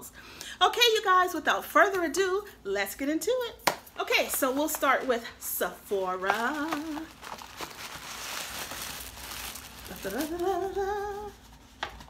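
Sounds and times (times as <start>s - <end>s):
paper crinkling and rustling: 6.2s - 12.0s
woman humming: 9.9s - 11.3s.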